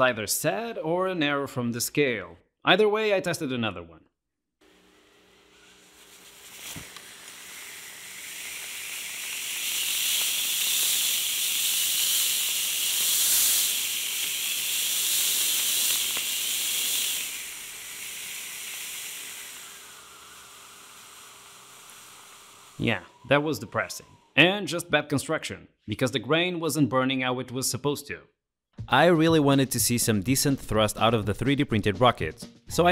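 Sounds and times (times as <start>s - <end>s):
rocket motor hissing: 4.6s - 24.4s.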